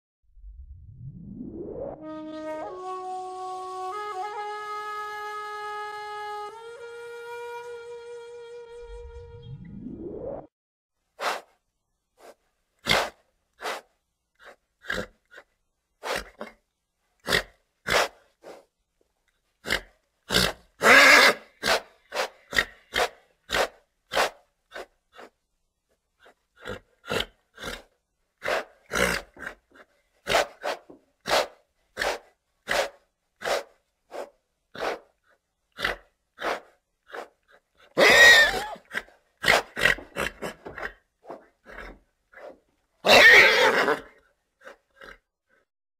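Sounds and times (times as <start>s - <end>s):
horse snorting: 12.2s - 16.6s, 17.2s - 18.7s, 19.6s - 25.4s, 26.2s - 45.2s.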